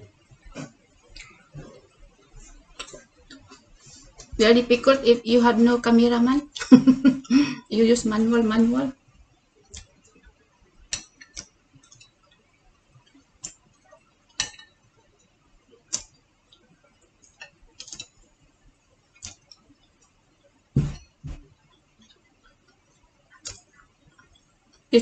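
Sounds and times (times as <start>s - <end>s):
chopsticks clicking on plate: 17.2s - 18.2s
plate knocking on table: 20.8s - 21.4s.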